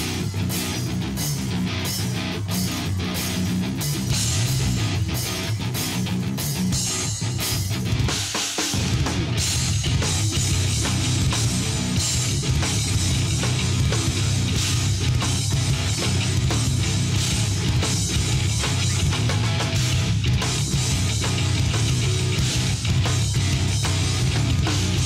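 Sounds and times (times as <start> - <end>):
distorted electric guitars: 0.0 - 25.0
drum kit pounding: 0.0 - 25.0.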